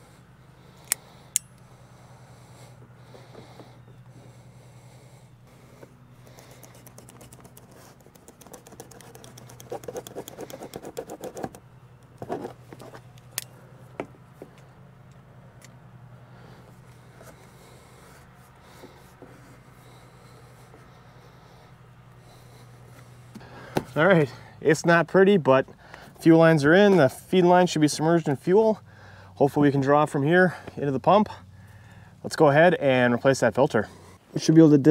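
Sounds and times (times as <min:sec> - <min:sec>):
steady low hum: 0:00.0 - 0:34.9
fast fine clicking and scratching: 0:06.2 - 0:13.0.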